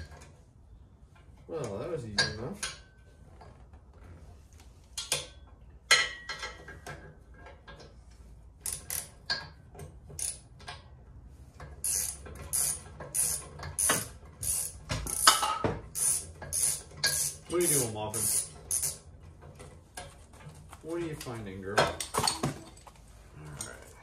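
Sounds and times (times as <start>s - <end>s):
ratchet wrench ratcheting: 8.6s - 9.5s, 10.2s - 10.5s, 11.8s - 19.1s.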